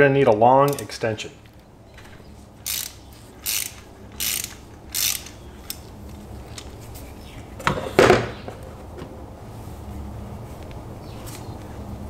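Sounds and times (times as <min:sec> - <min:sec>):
socket ratchet clicking: 0:00.7 - 0:00.9, 0:02.6 - 0:05.9.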